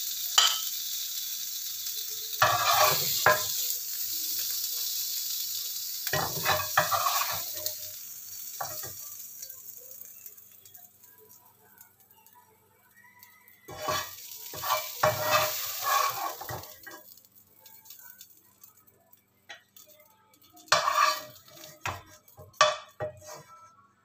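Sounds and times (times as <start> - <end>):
spatula scraping a frying pan: 2.4 - 3.6, 6.0 - 7.8, 13.7 - 17.0, 20.5 - 23.7.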